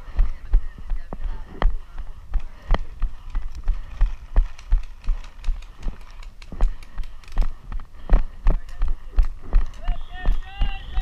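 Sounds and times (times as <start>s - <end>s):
running footsteps on dirt: 0.0s - 11.0s
gear knocking and rattling: 2.4s - 7.6s.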